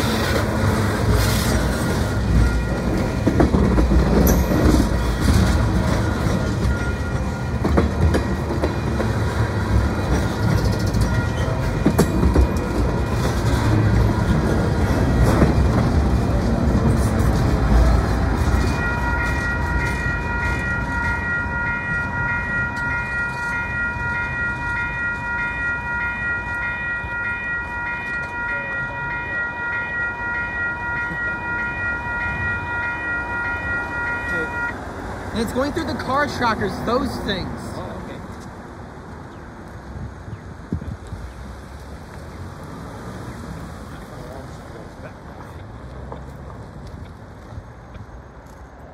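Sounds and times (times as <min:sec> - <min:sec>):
wheels clicking over rail joints: 0:00.0 - 0:37.2
crossing warning bell ringing: 0:00.0 - 0:38.0
freight train rolling past: 0:00.0 - 0:48.9.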